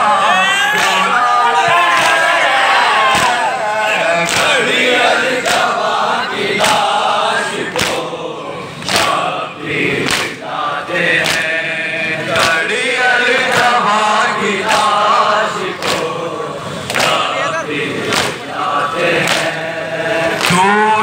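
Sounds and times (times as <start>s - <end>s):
crowd chanting: 0.0s - 21.0s
hands slapping chests: 3.1s - 3.4s, 7.8s - 8.1s, 10.0s - 10.4s, 11.2s - 11.5s, 18.1s - 18.4s.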